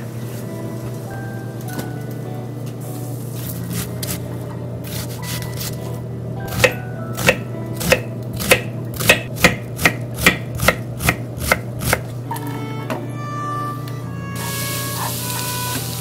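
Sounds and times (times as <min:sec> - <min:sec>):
knife chopping on wooden board: 0:06.5 - 0:12.1.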